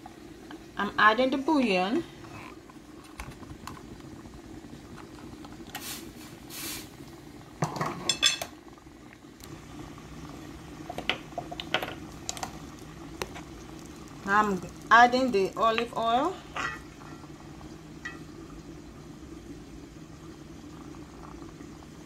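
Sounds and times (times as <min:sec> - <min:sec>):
steady low hum: 0:08.2 - 0:22.0.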